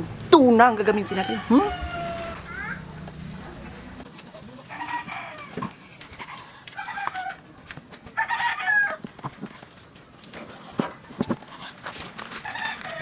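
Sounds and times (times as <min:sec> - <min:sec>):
chickens calling: 0:00.8 - 0:04.0.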